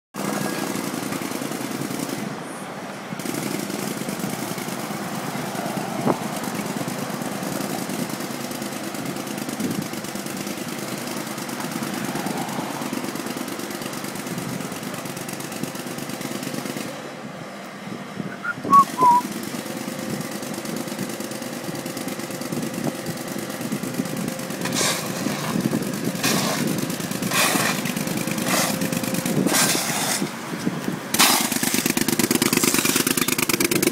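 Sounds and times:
engine running: 0.2s - 33.9s
street traffic: 0.2s - 33.9s
short high squeaks: 18.4s - 19.3s
shovels scraping dirt and asphalt: 24.5s - 33.9s.

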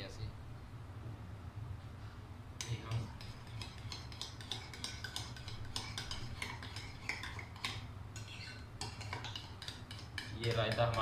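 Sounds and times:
metal spoon clinking in ceramic bowl: 2.6s - 11.0s.

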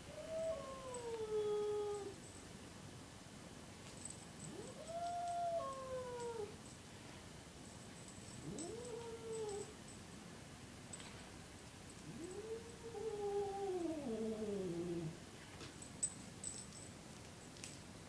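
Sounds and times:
cat yowling: 4.5s - 6.5s.

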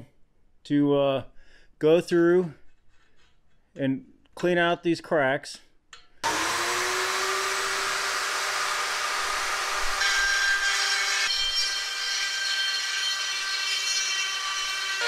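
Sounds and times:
rotary tool grinding metal: 6.2s - 15.0s.

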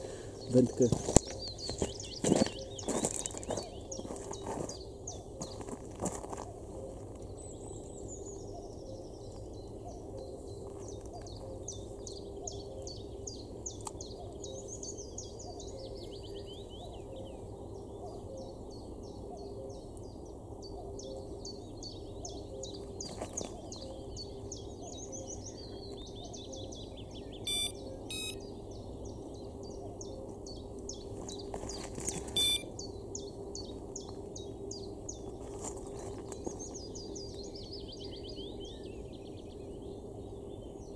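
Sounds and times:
small birds chirping: 0.0s - 40.9s
steady low hum: 0.0s - 40.9s
short sharp beeps: 27.5s - 28.4s, 32.2s - 32.7s.

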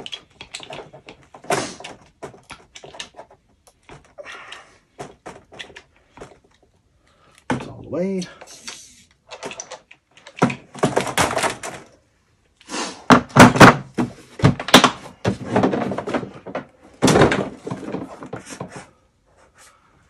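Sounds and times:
plastic case knocks and thuds: 10.4s - 11.8s, 13.1s - 18.7s.

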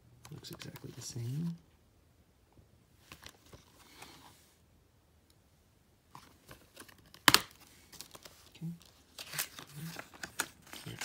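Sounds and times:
sharp plastic snap: 7.1s - 7.5s.

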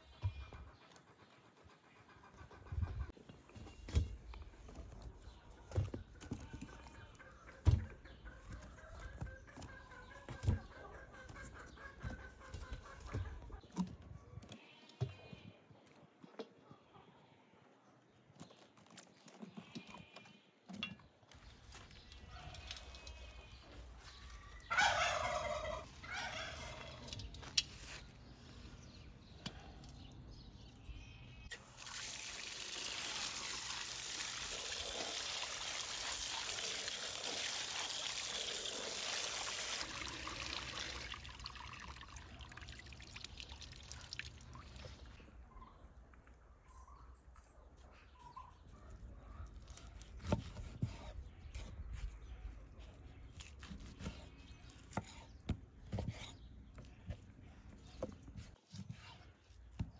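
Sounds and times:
turkey gobbling: 24.7s - 27.1s
water running onto vegetables: 31.5s - 44.6s.

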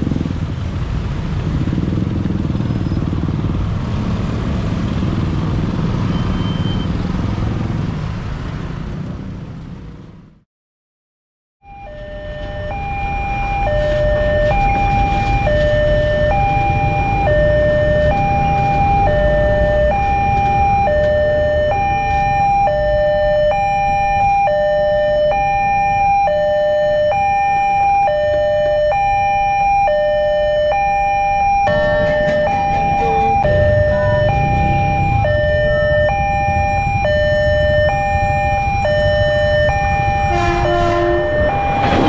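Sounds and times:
level crossing two-tone alarm: 11.6s - 42.0s.

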